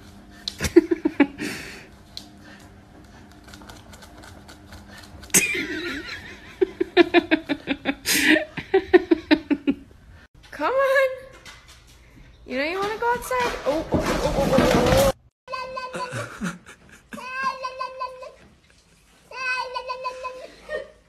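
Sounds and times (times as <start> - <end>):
person laughing: 0.5 - 1.8, 5.3 - 9.8, 15.8 - 19.0, 20.1 - 21.0.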